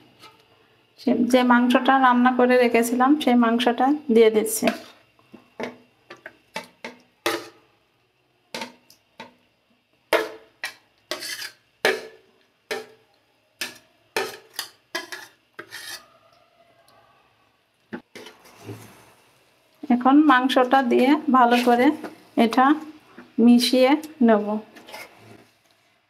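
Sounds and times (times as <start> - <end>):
spatula scraping a ceramic plate: 10.6 - 12.1, 13.6 - 16.2, 18.1 - 19.2, 24.8 - 25.5.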